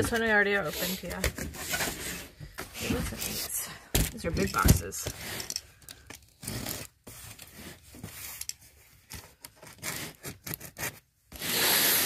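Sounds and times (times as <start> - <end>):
knife slitting packing tape: 9.6 - 12.0.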